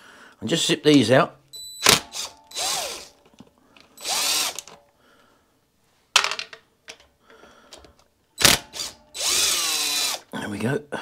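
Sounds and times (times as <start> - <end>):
cordless power tool spinning: 1.8 - 3.2, 3.9 - 4.8, 8.4 - 10.3.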